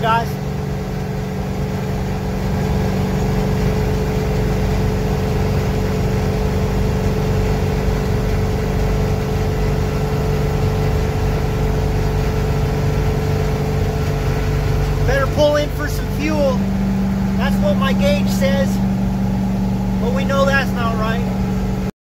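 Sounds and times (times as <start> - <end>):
diesel engine running: 0.0 - 21.9
road noise: 0.0 - 21.9
steady hum: 0.0 - 21.9.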